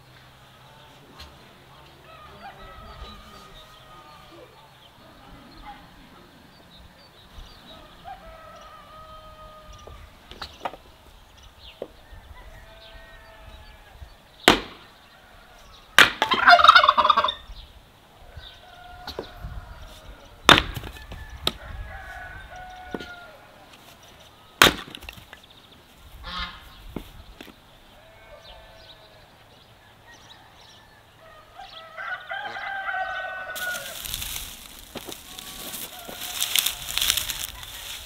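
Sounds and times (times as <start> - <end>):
poultry calling: 0.4 - 7.0, 12.0 - 14.2, 15.0 - 17.6, 26.2 - 26.8, 27.8 - 38.0.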